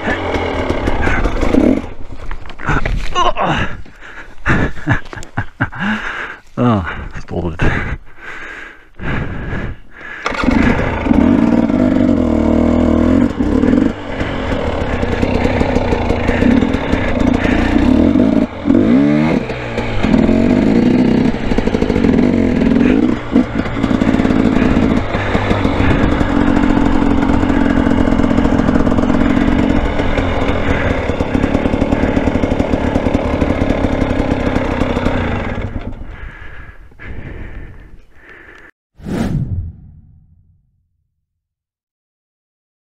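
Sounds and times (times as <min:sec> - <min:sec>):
dirt bike engine revving: 0:00.0 - 0:02.1, 0:10.2 - 0:36.4
dirt bike engine sputtering: 0:00.0 - 0:38.7.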